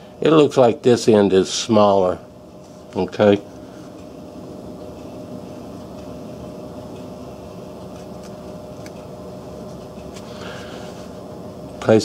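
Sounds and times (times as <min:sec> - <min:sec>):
steady mechanical hum: 0:00.0 - 0:12.0.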